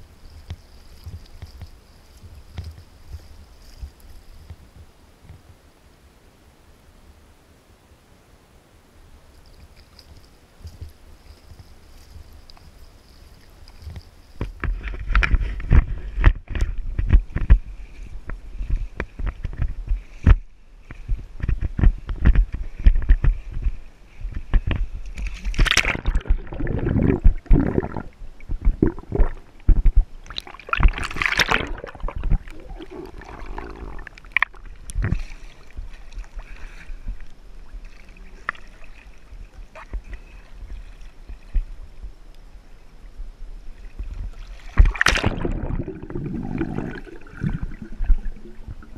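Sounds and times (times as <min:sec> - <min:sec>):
water splashing around a kayak: 0:00.0 - 0:05.4, 0:09.4 - 0:48.9
small waves lapping: 0:22.6 - 0:42.0
gurgling splashes: 0:25.3 - 0:36.7, 0:44.0 - 0:48.9.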